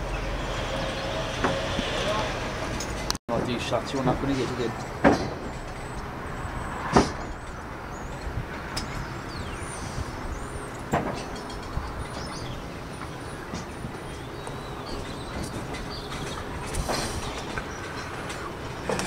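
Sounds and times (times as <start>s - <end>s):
distant road traffic: 0.0s - 19.0s
sharp knocks: 5.0s - 5.7s, 6.9s - 7.4s.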